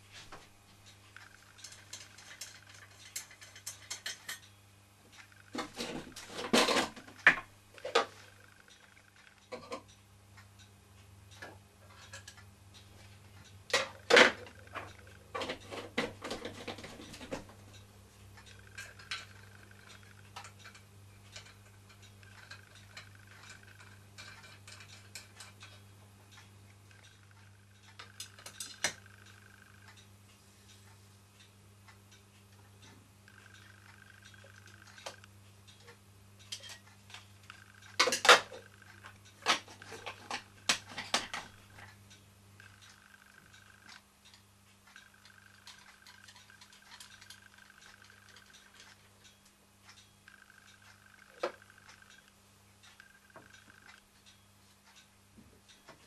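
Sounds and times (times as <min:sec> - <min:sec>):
metal toy clinking and knocking: 0:01.5 - 0:04.4, 0:45.0 - 0:49.0.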